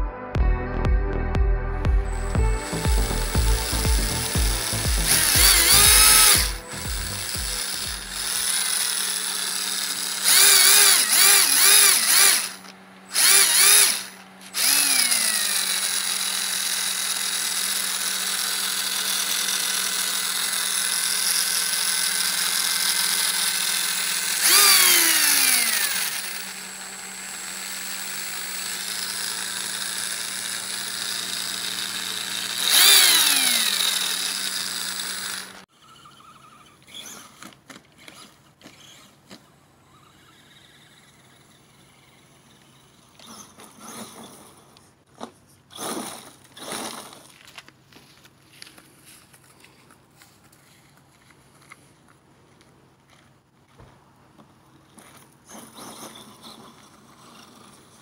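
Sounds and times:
electric motor whining: 2.0 - 44.8.

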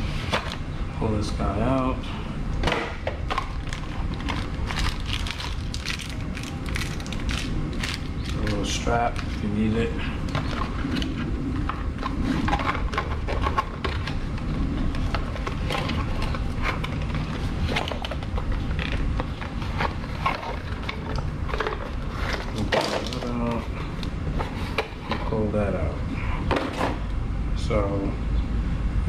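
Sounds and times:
plastic and cardboard rustling: 3.2 - 9.6, 10.3 - 25.4.

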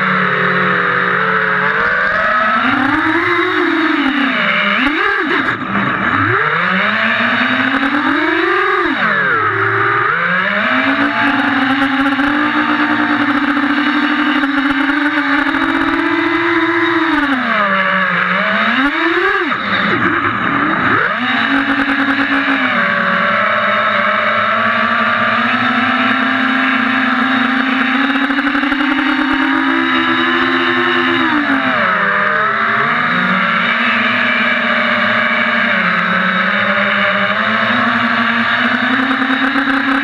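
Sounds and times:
quadcopter motors and propellers whining: 0.0 - 40.0.

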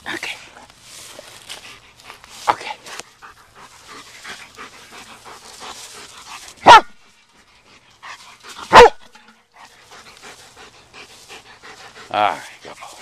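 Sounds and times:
dog barking: 6.6 - 7.0, 8.7 - 9.1.

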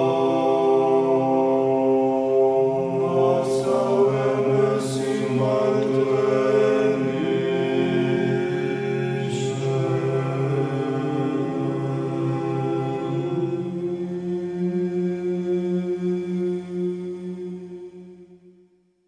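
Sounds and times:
slow vocal chant: 0.0 - 18.6.

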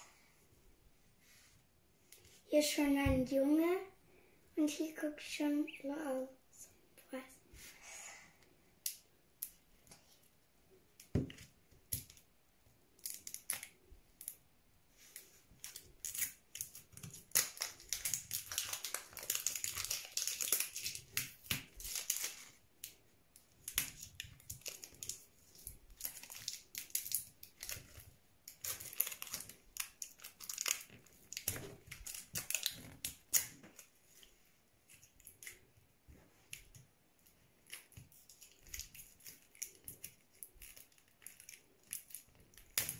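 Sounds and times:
plastic wrapping crinkling: 15.0 - 35.8, 36.4 - 42.9.

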